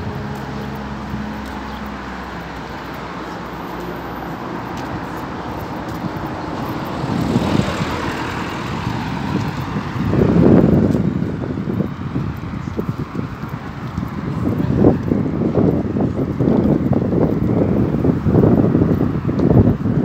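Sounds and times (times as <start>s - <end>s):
car passing by: 0.0s - 13.0s
vehicle engine drone: 0.0s - 20.0s.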